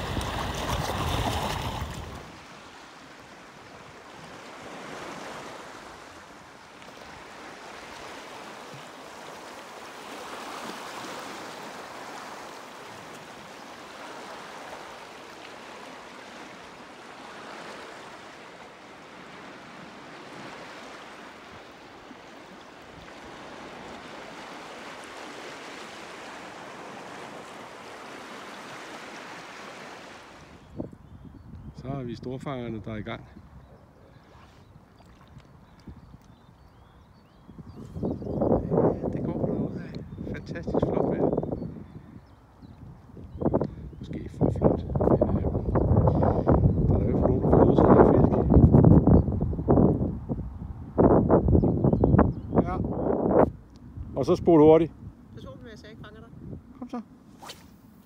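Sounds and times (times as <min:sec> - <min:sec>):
small waves washing on shore: 0:00.0 - 0:30.7.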